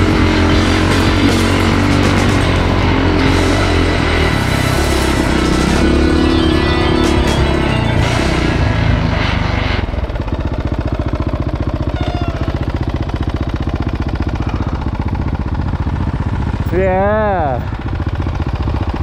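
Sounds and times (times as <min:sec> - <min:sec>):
background music: 0:00.0 - 0:10.0
dirt bike engine idling: 0:00.0 - 0:19.0.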